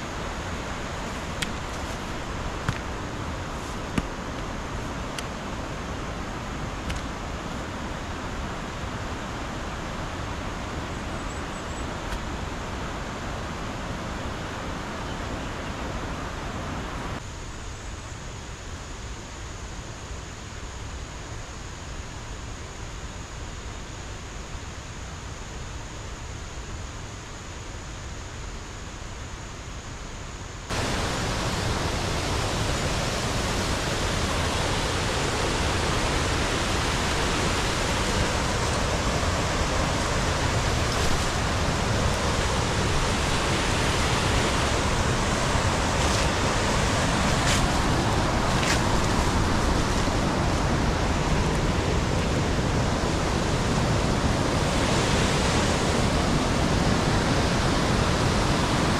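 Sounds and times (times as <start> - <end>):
waterfall and stream rushing: 0.0 - 17.2, 30.7 - 58.9
soft outdoor hiss: 0.0 - 58.9.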